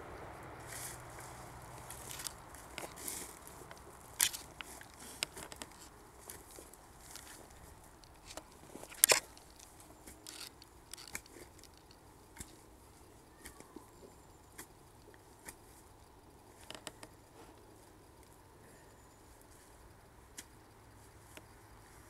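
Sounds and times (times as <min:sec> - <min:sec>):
spade scraping and crunching earth: 0:00.6 - 0:13.8
roots cracking: 0:00.6 - 0:13.9.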